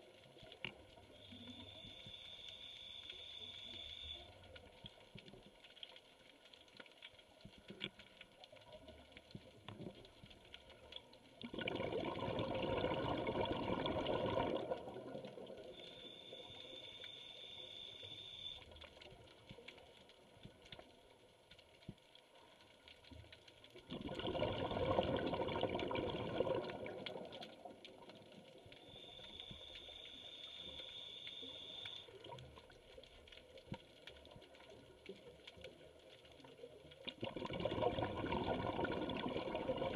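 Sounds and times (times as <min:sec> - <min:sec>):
light crackling: 0:00.0 - 0:11.5, 0:14.4 - 0:23.9, 0:26.5 - 0:37.2
underwater bubbling exhalations: 0:11.4 - 0:15.7, 0:23.8 - 0:28.0, 0:37.1 - 0:39.9.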